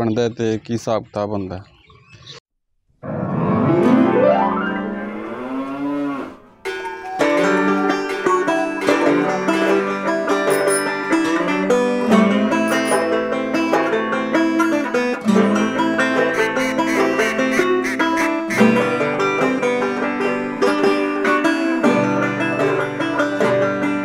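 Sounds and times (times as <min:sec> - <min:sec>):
banjo instrumental music: 0:03.1 - 0:05.3, 0:06.6 - 0:24.0
cow mooing: 0:04.7 - 0:06.6.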